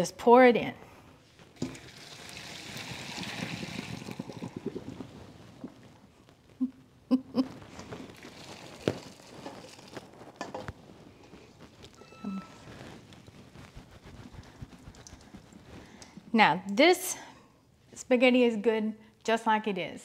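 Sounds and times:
water splashing into colander: 1.6 - 4.6, 8.2 - 10.0.

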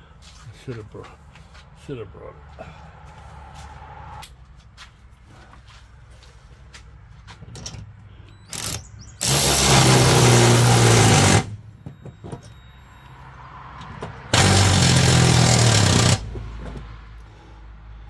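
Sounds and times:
electric ratchet wrench running: 8.5 - 11.5, 14.3 - 16.3.

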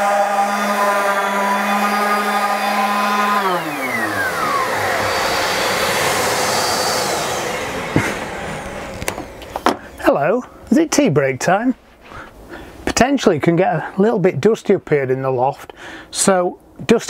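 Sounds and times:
orbital sander humming: 0.0 - 9.6
shop vacuum rushing: 0.0 - 9.9.

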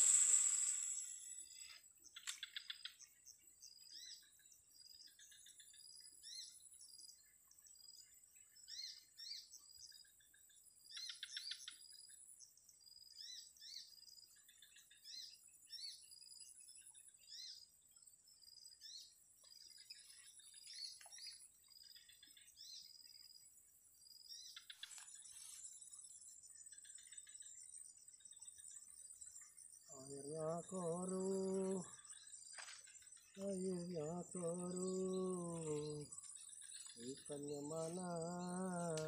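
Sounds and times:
high-pitched insect drone: 0.0 - 2.4, 26.4 - 39.0
birds chirping: 24.2 - 39.0.

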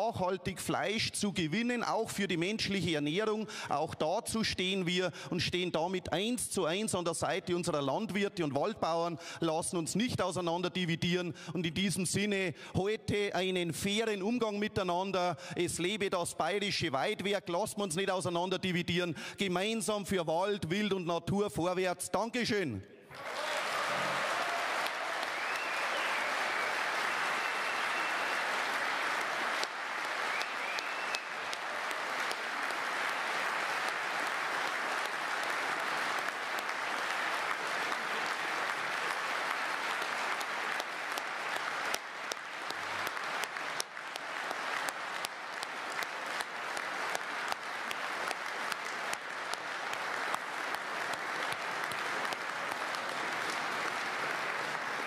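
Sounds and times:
audience applauding: 23.1 - 55.0.

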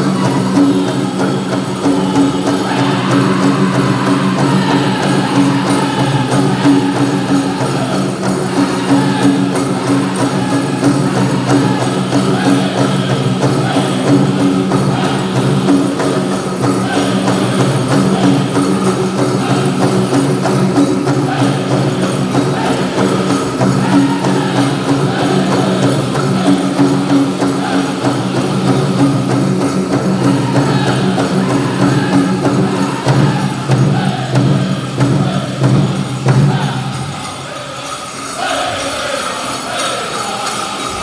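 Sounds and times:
big drum beating: 0.0 - 37.4
bells jingling: 0.0 - 41.0
drum group singing: 0.0 - 41.0.

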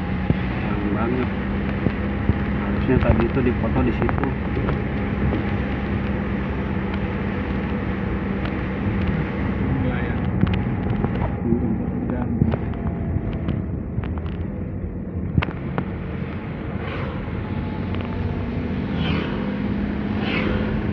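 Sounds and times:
car engine hum: 0.0 - 20.9
tyre noise on wet road: 0.0 - 20.9
small clicks and knocks: 10.1 - 11.4, 12.1 - 14.6.

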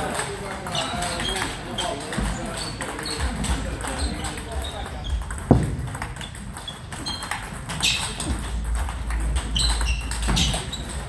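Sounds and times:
distant table tennis balls ticking: 0.0 - 11.0
table tennis ball clicking: 0.0 - 11.0
dull thump: 5.4 - 6.1.

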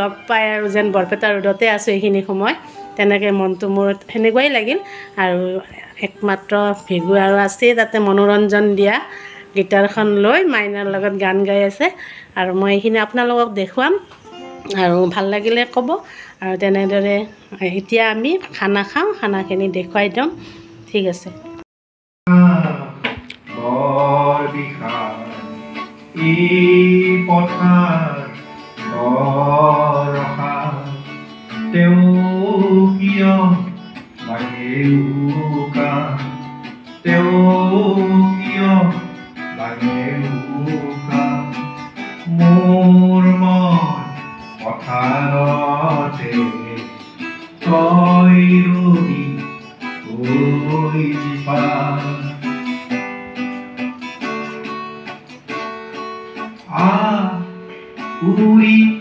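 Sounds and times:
strummed acoustic guitar: 0.0 - 21.6, 22.3 - 59.0
man singing into microphone: 22.3 - 52.8, 56.6 - 59.0.

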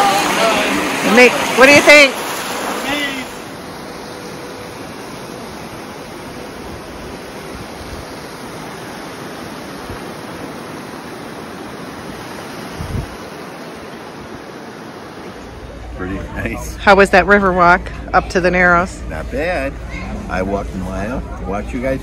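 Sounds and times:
river rushing over rocks: 0.0 - 17.0.

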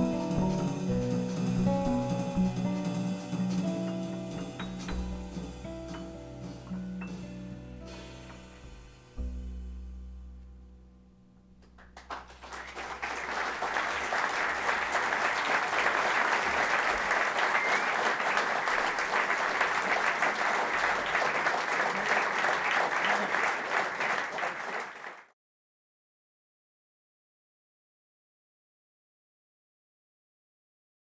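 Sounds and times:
band's low note: 0.0 - 13.7
audience applauding: 11.7 - 25.3.

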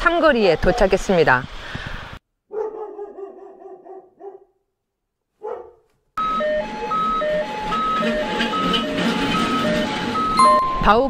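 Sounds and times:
dog barking: 2.5 - 4.6, 5.4 - 5.9
simple electronic tune: 10.2 - 11.0.

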